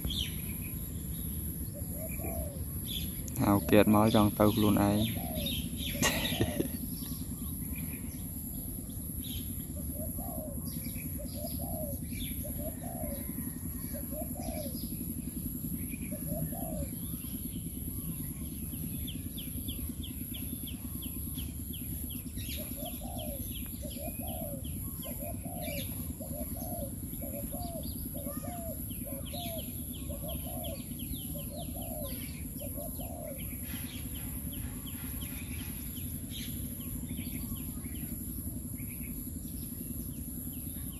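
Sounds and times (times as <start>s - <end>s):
outdoor background hum: 0.0s - 40.9s
dove cooing: 1.5s - 7.6s, 9.6s - 14.9s, 16.0s - 17.2s, 22.5s - 35.5s.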